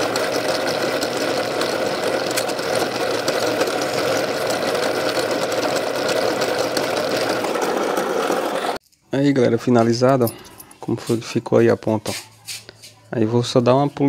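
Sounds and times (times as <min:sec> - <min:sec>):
drill press running: 0:00.0 - 0:08.8.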